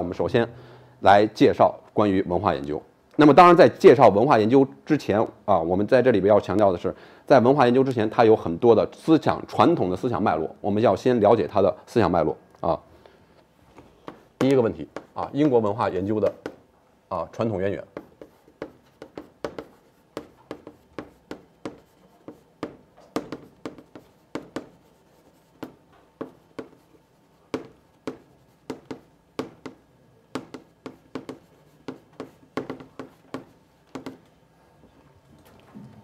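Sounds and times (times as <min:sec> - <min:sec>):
chalk writing on blackboard: 0:14.0 - 0:16.6, 0:17.8 - 0:34.2.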